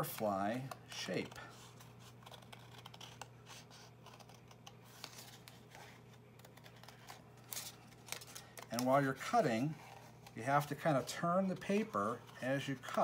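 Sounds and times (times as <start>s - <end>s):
scissors snipping paper: 2.2s - 3.3s.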